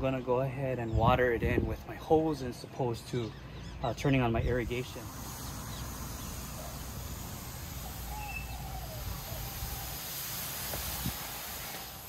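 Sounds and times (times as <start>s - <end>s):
hose water spray hissing: 4.4s - 12.0s
faint bird chirps: 5.2s - 9.9s.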